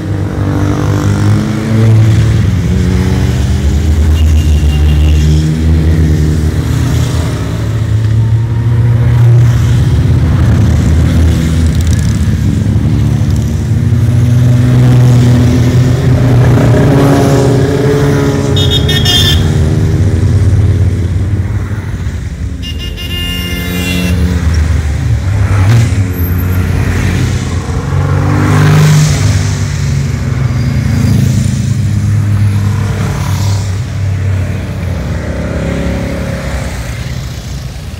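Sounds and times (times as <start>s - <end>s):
short horn toots: 18.6s - 19.5s.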